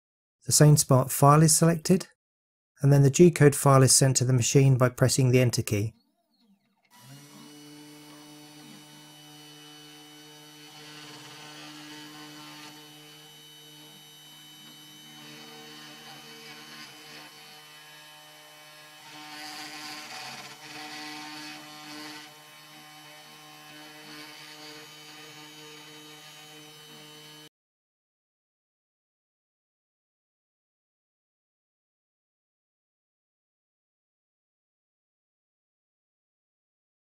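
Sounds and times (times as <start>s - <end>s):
router bit cutting wood: 6.7s - 27.5s
axis motor whines: 6.9s - 17.5s
cnc router motor hum: 6.9s - 27.5s.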